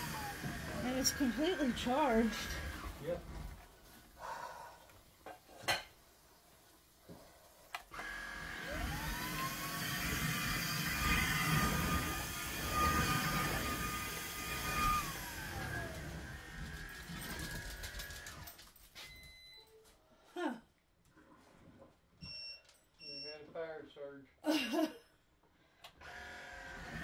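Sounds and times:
vacuum cleaner motor whine: 0.0 - 3.5, 7.8 - 18.5, 26.0 - 27.0.

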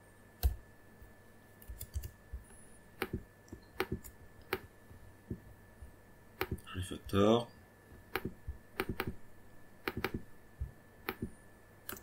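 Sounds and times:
keyboard and mouse clicks: 1.6 - 4.7, 6.4 - 6.7, 8.0 - 9.2, 9.8 - 10.3, 11.0 - 12.0.

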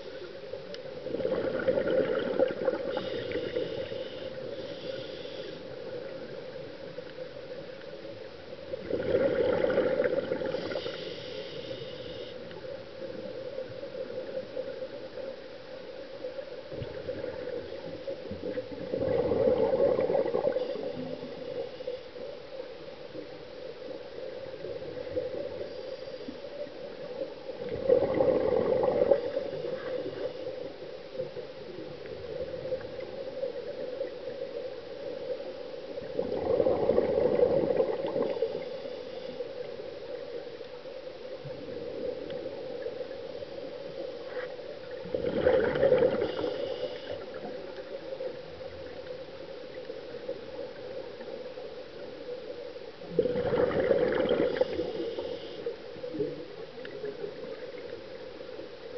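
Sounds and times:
exhaled bubbles underwater: 1.0 - 5.0, 8.7 - 11.0, 16.7 - 21.7, 27.5 - 34.5, 35.9 - 38.8, 44.7 - 49.2, 53.0 - 58.9.

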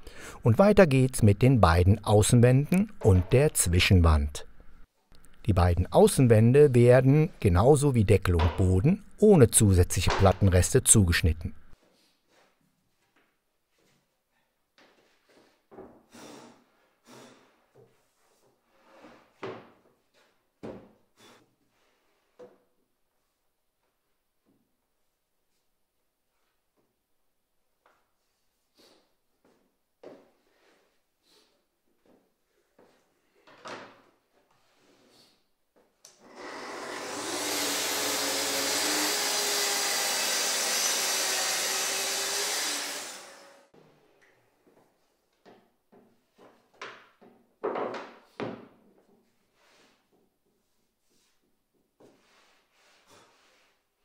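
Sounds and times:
track saw cutting wood: 36.2 - 43.7
dust extractor running: 36.3 - 43.7.

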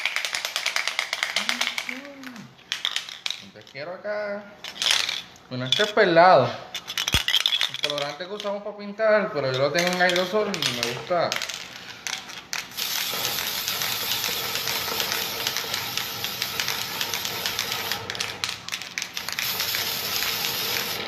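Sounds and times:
aerosol can spraying hiss: 12.7 - 18.1, 19.2 - 21.0.

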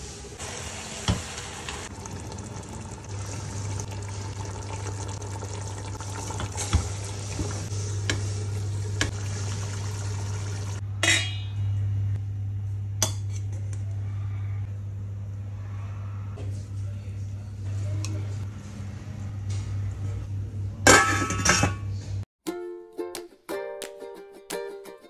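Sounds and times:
wooden spoon stirring in pot: 2.0 - 10.8
steel cookware clattering: 10.5 - 11.6, 20.9 - 21.8.

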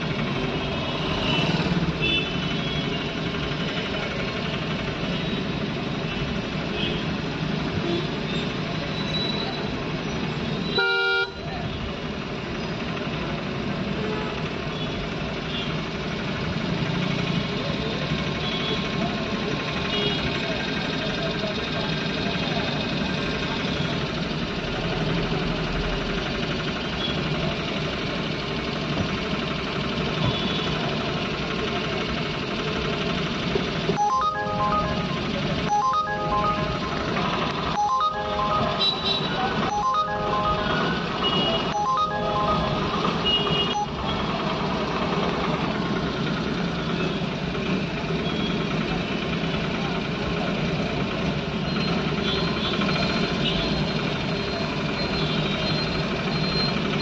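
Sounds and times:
car engines idling in traffic: 0.0 - 57.0
short beeping tones: 34.0 - 44.4.

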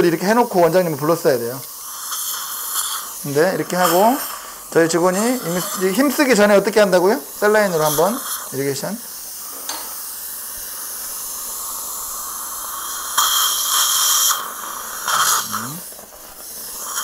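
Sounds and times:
dental suction hissing: 0.0 - 17.0
suction slurping liquid: 10.3 - 17.0.

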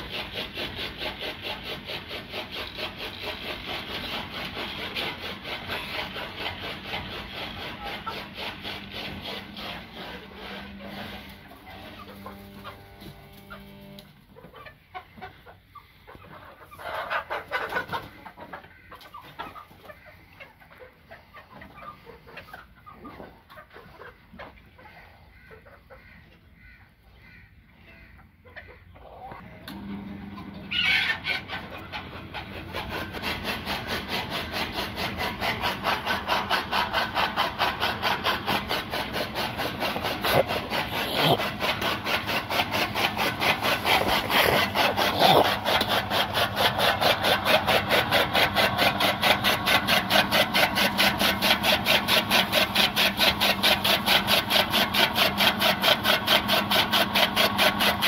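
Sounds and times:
chaff cutter motor hum: 0.0 - 14.6, 29.4 - 58.0
chickens clucking: 0.0 - 58.0.

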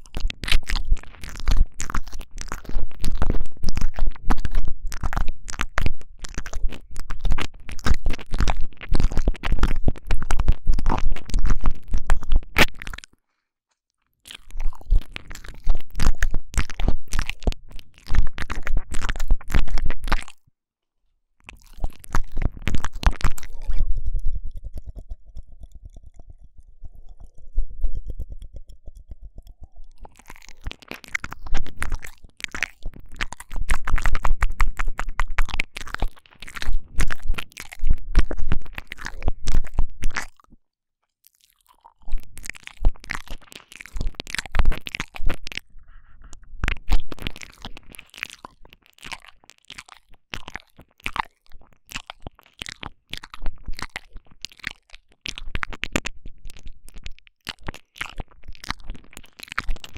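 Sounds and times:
wet mouth sounds: 0.0 - 13.2, 14.2 - 20.4, 21.4 - 40.6, 41.2 - 59.9
tongue clicks rattling: 21.8 - 40.3.

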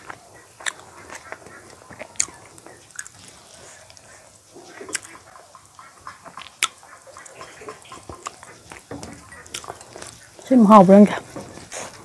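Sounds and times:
wet chewing: 0.0 - 10.6
mouth smacks: 4.7 - 5.3, 6.3 - 8.9, 9.5 - 10.1.

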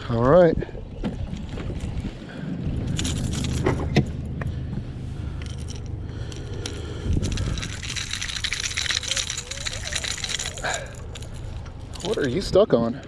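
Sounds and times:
boat motor humming: 0.7 - 12.4
fishing hooks and pliers jangling: 2.8 - 3.9, 5.3 - 12.6.

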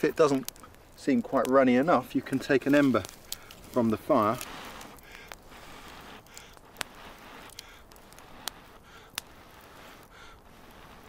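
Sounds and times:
sharp pops of fire: 0.0 - 11.0
wood fire crackling: 0.0 - 11.0
person blowing on ember: 3.1 - 11.0.

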